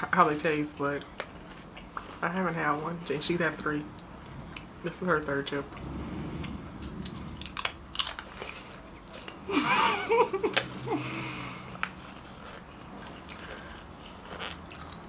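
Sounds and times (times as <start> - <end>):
crisp crunching while chewed: 0.9 - 2.3, 7.1 - 9.5, 11.7 - 15.0.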